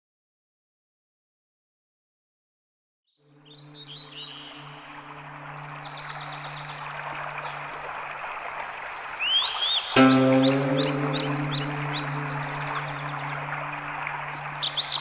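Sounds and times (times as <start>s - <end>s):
birds chirping and singing: 8.7s - 15.0s
soft held low notes: 10.0s - 15.0s.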